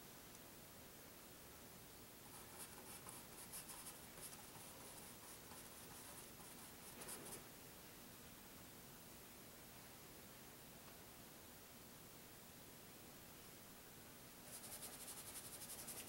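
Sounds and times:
paintbrush scratching on canvas: 0:02.3 - 0:07.4, 0:14.5 - 0:16.0.

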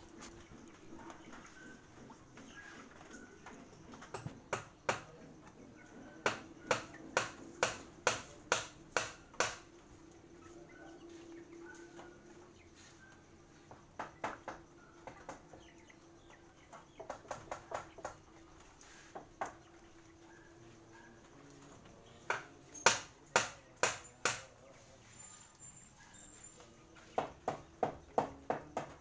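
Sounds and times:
sharp knocks: 0:04.1 - 0:05.2, 0:06.2 - 0:09.7, 0:22.3 - 0:24.5.

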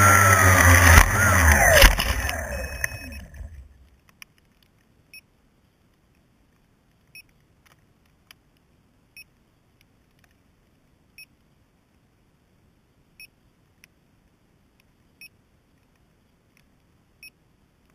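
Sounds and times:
short high electronic beep: 0:00.8 - 0:03.6
faint ticks: 0:01.8 - 0:12.0
faint steady hiss: 0:03.1 - 0:17.9.

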